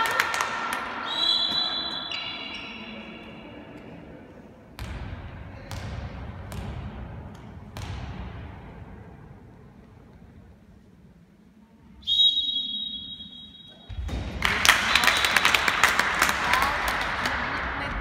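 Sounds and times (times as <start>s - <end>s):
ball bouncing on hall floor: 4.7s - 9.2s, 13.8s - 18.0s.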